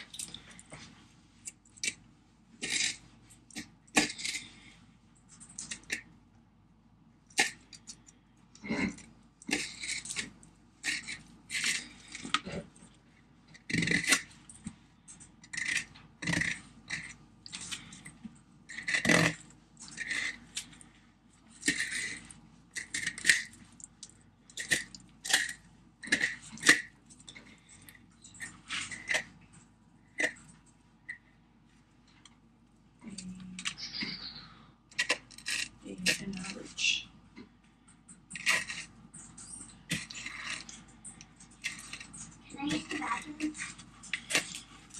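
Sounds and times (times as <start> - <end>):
knife scraping fish skin: 38.3 - 38.9.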